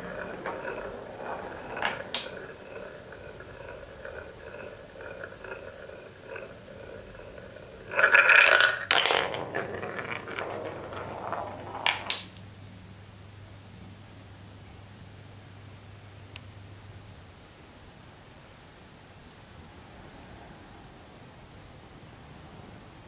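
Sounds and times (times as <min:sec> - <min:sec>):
loud wooden clatter: 0:00.0 - 0:12.3
wooden ball rolling in funnel: 0:00.0 - 0:12.4
sharp wooden clacks: 0:11.7 - 0:12.4.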